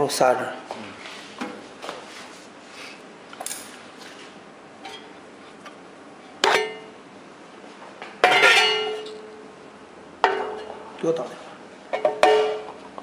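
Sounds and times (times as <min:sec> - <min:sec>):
ringing metal clanks: 0:08.2 - 0:09.3, 0:11.9 - 0:12.7.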